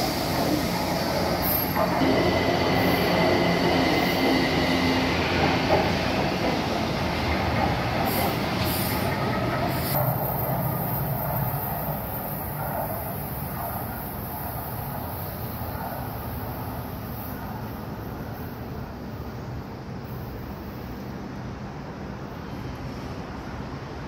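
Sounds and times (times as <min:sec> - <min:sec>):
train wheel squeal: 0:00.0 - 0:06.8, 0:07.6 - 0:19.4
underground train running: 0:00.0 - 0:24.0.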